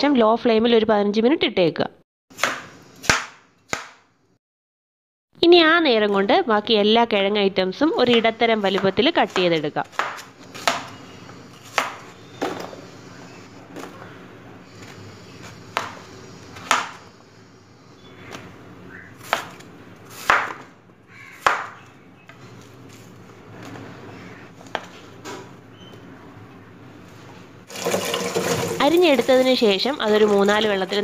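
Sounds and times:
knife chopping on wooden board: 2.4s - 4.0s, 8.1s - 11.0s, 19.2s - 20.7s, 21.4s - 21.8s.

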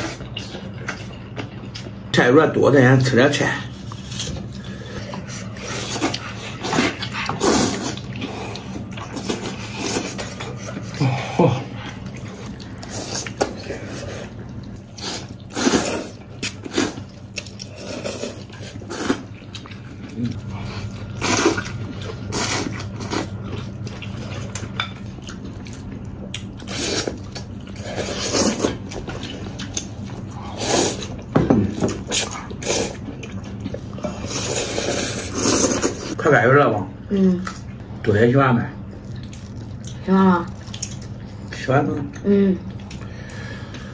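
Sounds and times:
chewing: 0.0s - 2.1s, 3.6s - 36.2s, 38.8s - 43.9s
slurping noodles: 4.0s - 11.3s, 12.8s - 17.0s, 34.0s - 36.2s.

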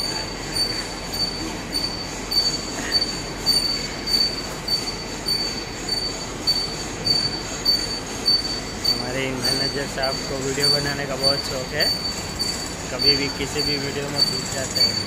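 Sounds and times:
high-pitched cutting squeal: 0.0s - 15.0s
lathe running: 0.0s - 15.0s.

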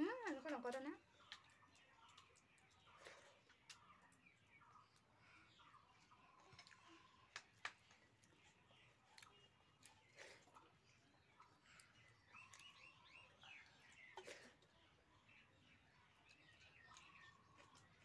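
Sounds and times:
bird chirps: 10.8s - 18.0s.

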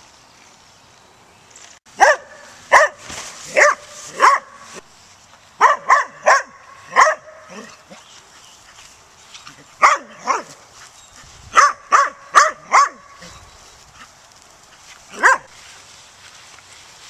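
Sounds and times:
small dog barking: 2.0s - 4.6s, 5.6s - 7.9s, 9.8s - 10.6s, 11.5s - 13.4s, 15.1s - 15.5s.

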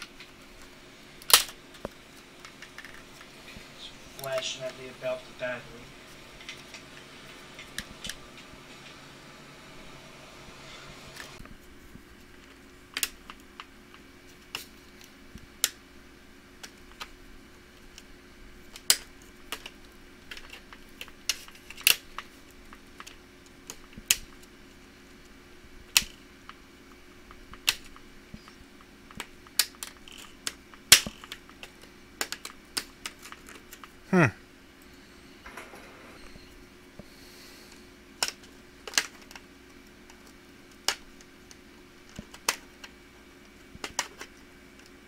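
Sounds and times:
plastic clicks and snaps: 27.3s - 33.9s, 38.2s - 45.0s.

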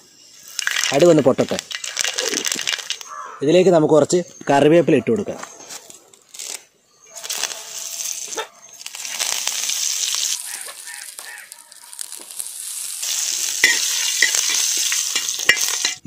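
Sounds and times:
seeds crackling: 0.4s - 3.2s, 5.8s - 16.0s
oil sizzling in a pan: 7.3s - 16.0s.

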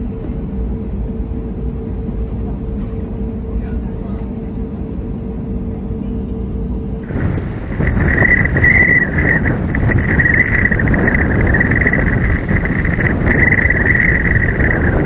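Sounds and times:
cabin hum: 4.2s - 15.0s
jet engines whining: 6.8s - 15.0s
wind on microphone: 7.0s - 15.0s.

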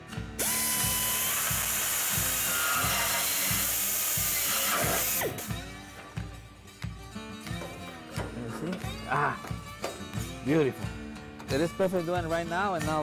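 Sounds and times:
power tool motor whining: 0.4s - 5.6s
hissing cutting noise: 0.4s - 5.8s.

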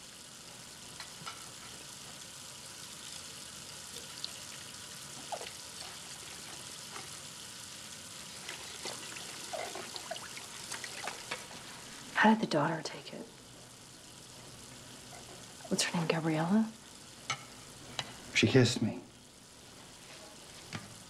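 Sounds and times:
tap water running into steel sink: 8.4s - 11.5s.

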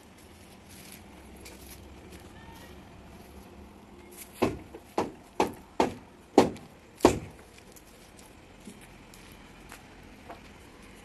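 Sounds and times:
logs knocking together: 4.4s - 7.5s.

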